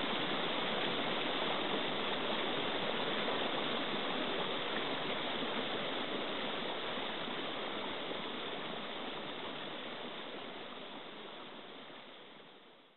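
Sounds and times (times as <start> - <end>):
running water rushing: 0.0 - 12.7.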